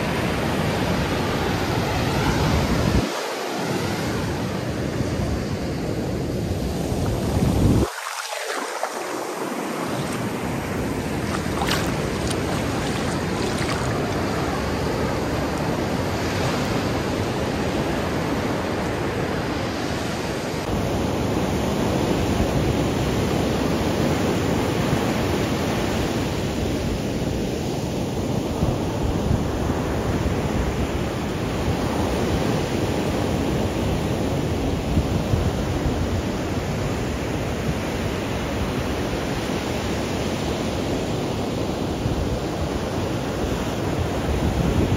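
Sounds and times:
ocean surf breaking: 0.0 - 20.7
wind on microphone: 0.0 - 27.4.

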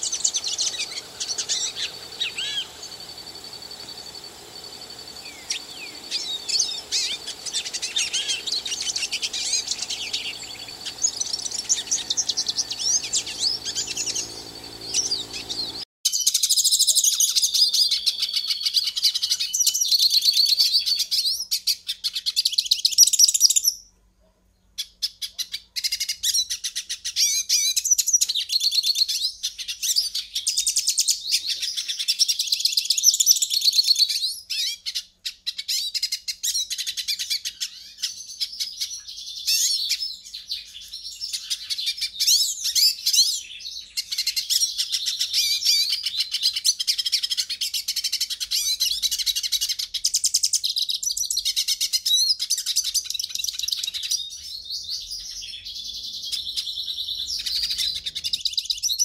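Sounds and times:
low background hum: 0.0 - 15.8
goldfinch twittering song: 0.0 - 20.6, 52.4 - 59.0.

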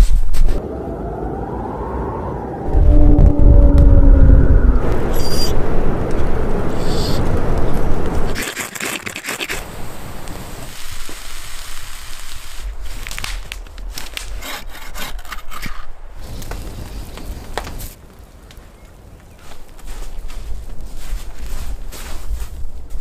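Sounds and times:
branch dragged over snow: 10.7 - 14.5
twigs snapping and cracking: 12.6 - 14.5.

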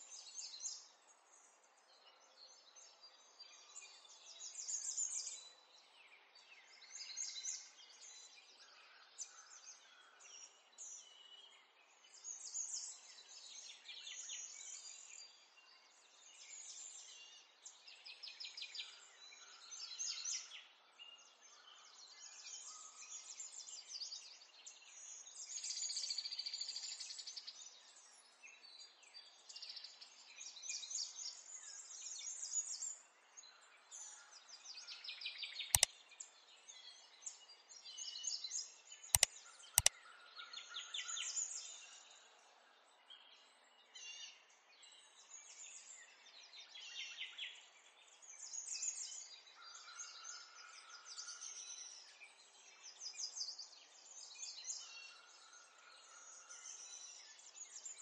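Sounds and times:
birds chirping and twittering: 30.6 - 58.0
sharp clicks: 39.2 - 39.9.

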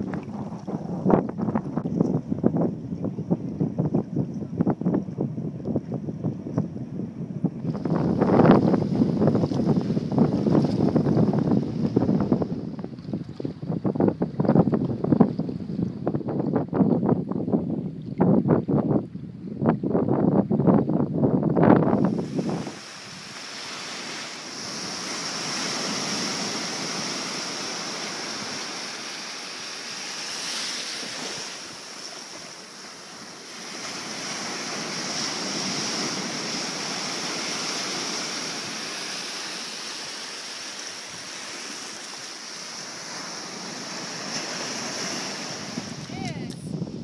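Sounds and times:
small waves washing up sandy shore: 7.7 - 13.4, 21.9 - 47.0.

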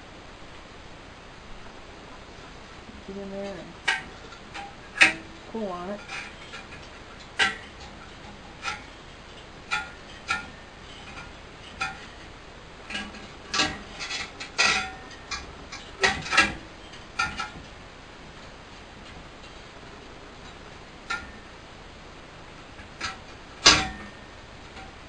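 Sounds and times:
wire mesh knocking and rattling: 3.4 - 19.6, 20.4 - 21.5, 22.6 - 25.0.

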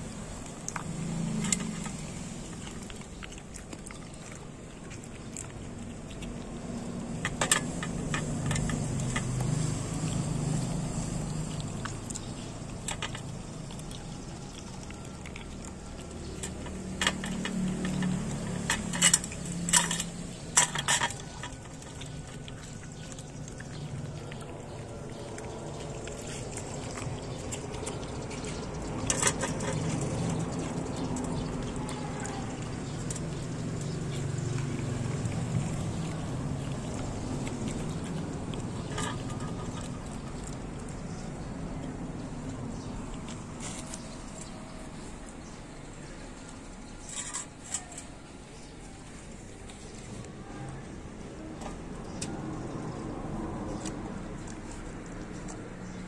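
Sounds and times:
dog chewing and licking: 0.0 - 56.0
metal bowl clanking: 16.2 - 22.5, 28.4 - 33.2.

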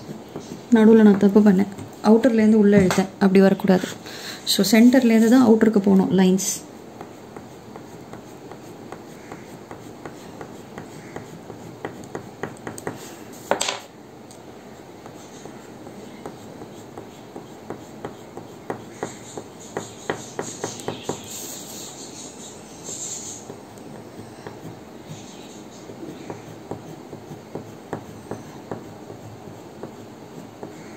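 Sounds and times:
crayon scratching on paper: 6.4 - 13.0, 14.8 - 30.9.

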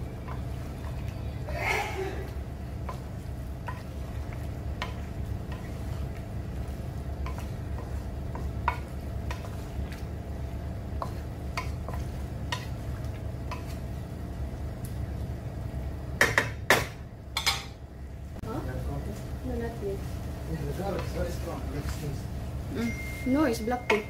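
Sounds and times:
spatula scraping pan: 0.2 - 10.2, 10.9 - 13.9.

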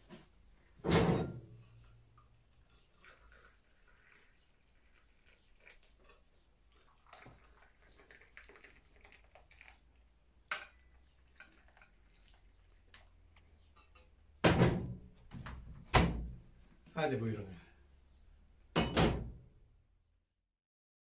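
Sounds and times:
tea trickling into glass: 2.6 - 9.9, 10.7 - 13.4
loud knock: 18.8 - 19.4.

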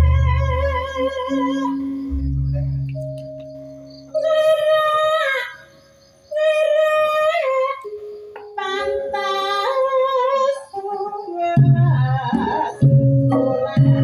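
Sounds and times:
woman singing: 0.0 - 2.0, 4.2 - 5.7, 6.3 - 14.0.

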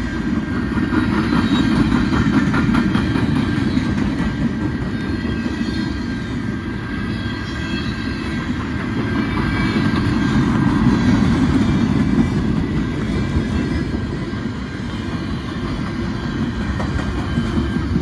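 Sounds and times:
clickety-clack over rail joints: 0.0 - 18.0
steel wheels rumbling on rails: 0.0 - 18.0.

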